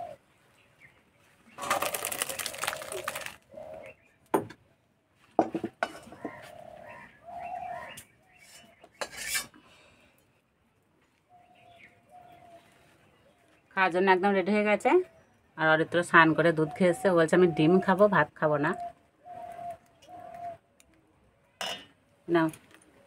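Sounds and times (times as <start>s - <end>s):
pigeons cooing: 0.0s - 0.3s, 1.6s - 4.1s, 6.0s - 8.8s, 18.7s - 20.8s
metal spatula scraping a wok: 8.4s - 9.6s.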